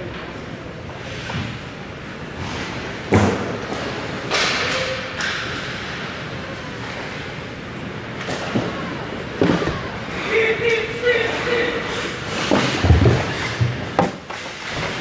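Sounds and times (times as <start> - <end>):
puck thud: 3.1 - 5.7, 11.5 - 15.0
skate blades scraping ice: 10.1 - 15.0.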